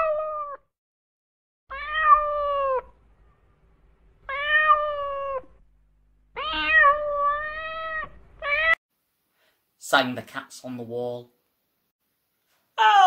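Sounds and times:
cat meowing: 0.0s - 0.7s, 1.7s - 3.0s, 4.3s - 5.6s, 6.4s - 8.8s.

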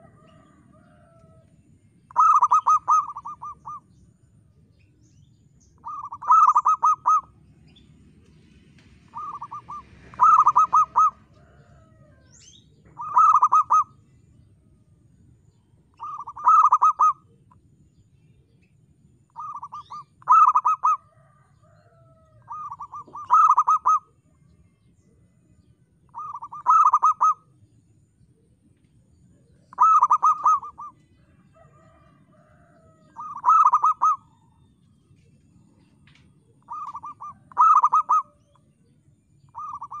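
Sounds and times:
dove cooing: 0.0s - 1.5s, 2.1s - 4.0s, 5.8s - 7.4s, 9.0s - 14.0s, 15.9s - 17.6s, 19.4s - 24.6s, 26.1s - 27.5s, 29.4s - 34.6s, 36.6s - 38.6s, 39.5s - 40.0s.

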